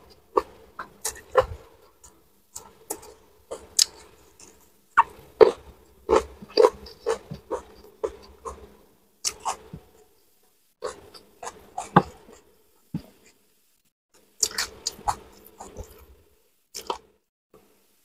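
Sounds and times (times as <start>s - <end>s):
person chewing and lip-smacking: 0.4s - 9.8s, 14.4s - 16.1s, 16.7s - 17.1s.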